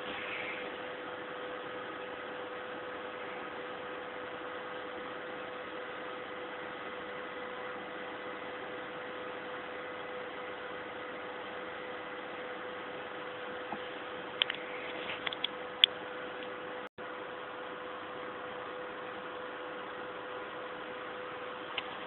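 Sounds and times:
even hiss: 0.0 - 1.1
steady mid-pitched hum: 0.0 - 22.0.

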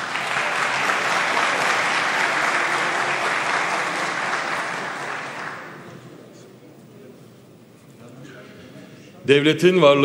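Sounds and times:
audience applause: 0.0 - 5.9.

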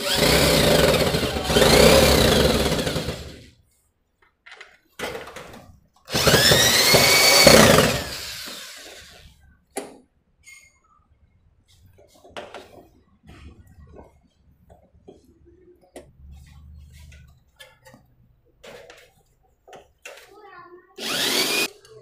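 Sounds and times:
cordless drill driving screws: 0.0 - 3.4, 6.1 - 9.2, 21.0 - 21.7.

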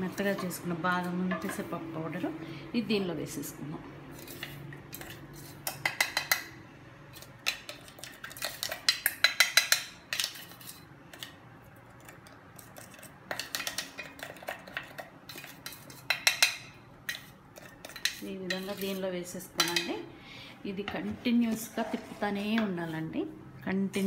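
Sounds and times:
scraping in a pan: 4.1 - 6.0, 12.6 - 19.8, 20.9 - 23.1
spoon clinking against metal bowl: 7.2 - 11.2, 12.6 - 19.9.

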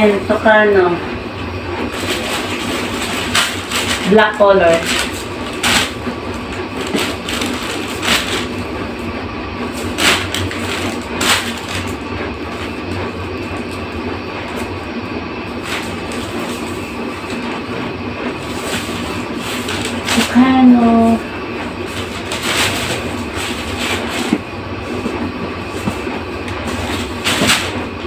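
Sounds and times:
background hum: 0.0 - 28.0
plastic packaging crinkling: 1.9 - 8.7, 9.6 - 12.8, 15.6 - 17.4, 18.3 - 28.0.

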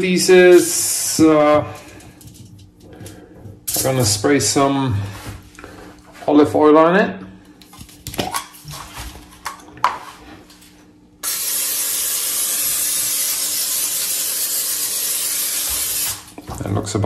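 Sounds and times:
cooking spray hissing: 11.2 - 16.4.

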